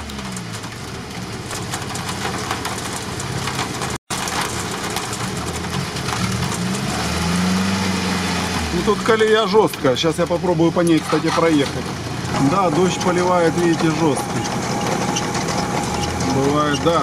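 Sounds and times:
rain falling: 0.0s - 17.0s
off-road vehicle engines idling: 8.6s - 17.0s.

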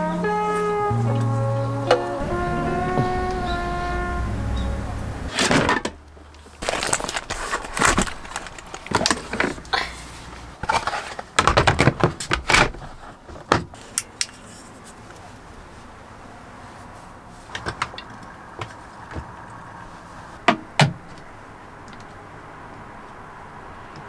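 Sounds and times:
household items clattering: 5.3s - 10.0s.

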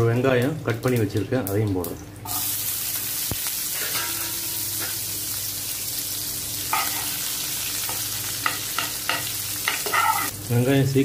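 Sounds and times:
onions sizzling in hot oil: 0.8s - 11.0s
metal spoon clattering on pan: 8.4s - 10.3s.

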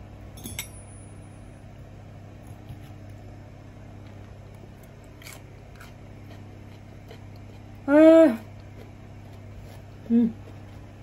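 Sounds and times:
low hum of room tone: 0.0s - 11.0s
person chewing food: 4.0s - 11.0s.

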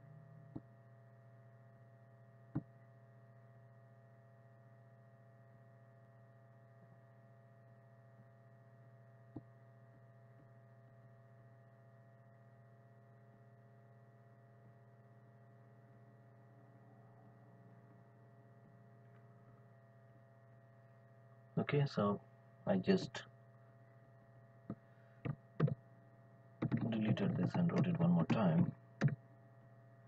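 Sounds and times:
low electrical hum: 0.0s - 30.0s
computer mouse clicks: 24.7s - 25.8s, 26.6s - 29.2s.

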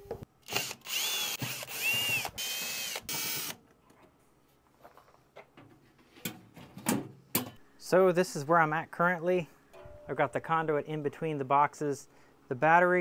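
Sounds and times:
cordless drill whining: 0.4s - 3.6s.

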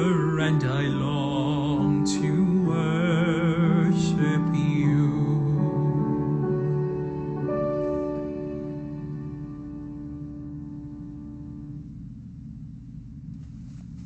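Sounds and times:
man singing with vibrato: 0.0s - 7.4s
ringing accompaniment chord: 0.0s - 12.1s.

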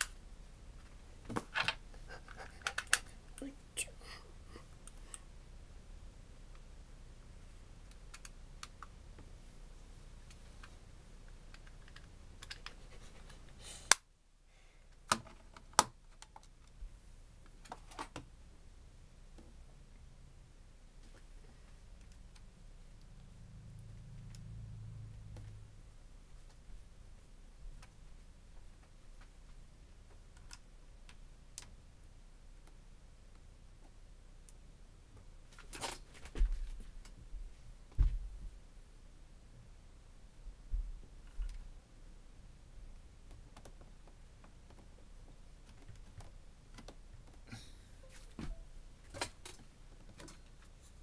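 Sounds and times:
small plastic parts clicking: 1.5s - 3.5s, 11.5s - 12.8s.

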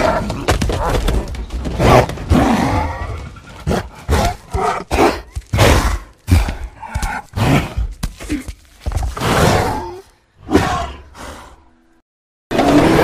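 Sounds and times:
giant gorilla roars and grunts: 9.1s - 11.6s, 12.5s - 13.0s.

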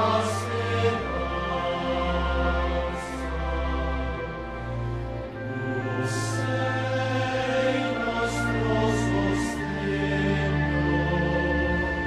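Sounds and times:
voices singing a slow hymn: 0.0s - 4.7s, 5.4s - 12.0s
low held accompaniment: 0.0s - 12.0s.

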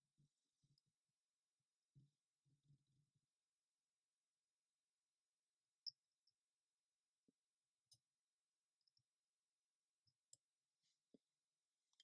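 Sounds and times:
faint clicks of tweezers: 7.9s - 8.1s, 8.8s - 9.1s.

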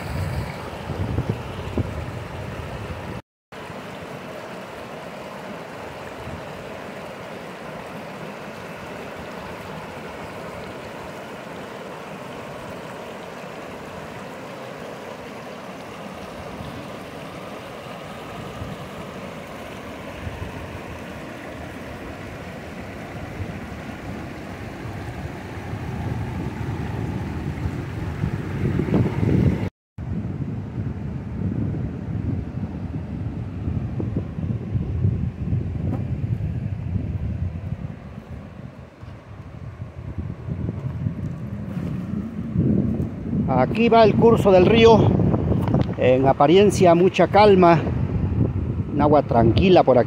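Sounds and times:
wind rumble on microphone: 0.0s - 3.2s, 18.3s - 50.0s
river rushing over rocks: 3.6s - 25.6s.

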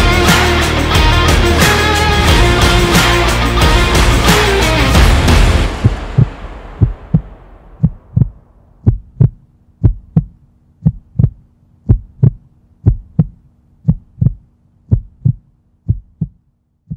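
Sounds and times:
heartbeat thumps: 5.1s - 16.9s
faint low hum: 6.8s - 16.9s.

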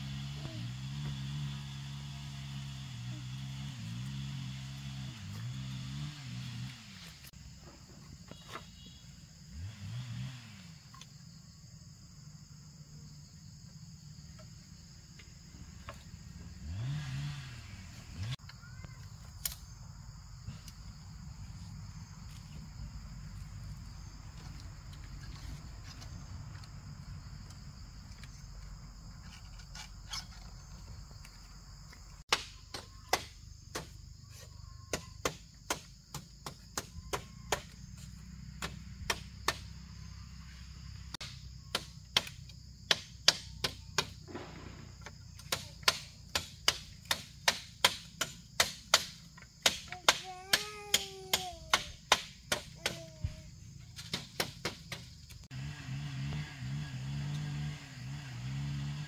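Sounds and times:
forest insect drone: 0.0s - 59.0s
bamboo panels creaking and scraping: 23.4s - 33.2s.

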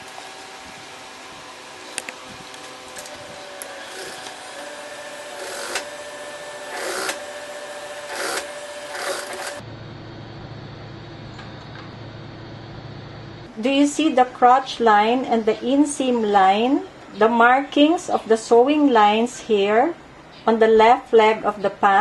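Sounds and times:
motor hum: 0.0s - 13.5s
sewing machine stitching: 3.8s - 7.3s, 8.0s - 9.6s.

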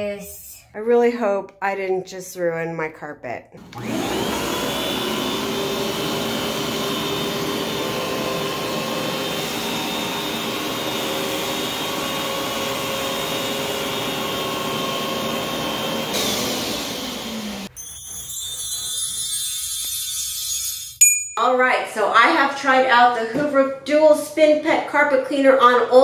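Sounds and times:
carpet cleaner motor whine: 3.6s - 17.7s.

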